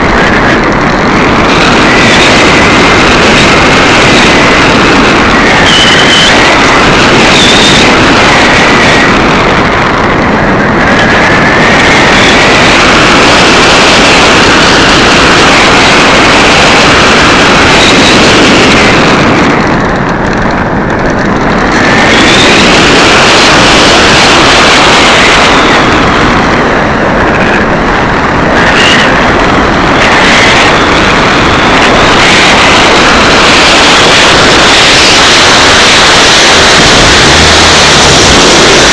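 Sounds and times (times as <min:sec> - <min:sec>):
distorted wind rush: 0:00.0 - 0:38.9
electric motor and propeller whine: 0:00.0 - 0:38.9.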